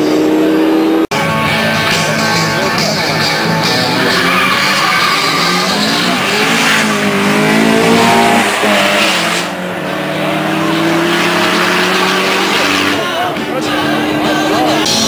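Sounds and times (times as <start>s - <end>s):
race car engines accelerating: 0.0s - 15.0s.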